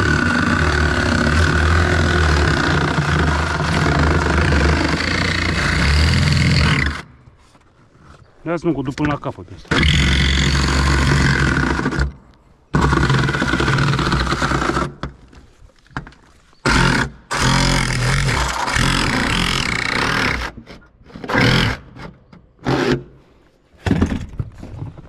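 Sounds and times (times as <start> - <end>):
reciprocating saw cutting metal: 0.0 - 7.1, 9.7 - 12.2, 12.8 - 15.0, 16.7 - 23.1.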